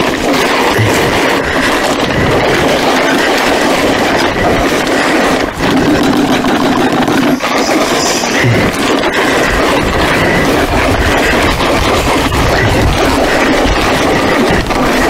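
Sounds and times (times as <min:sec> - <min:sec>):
clay rubbed through a sieve: 0:06.8 - 0:10.7.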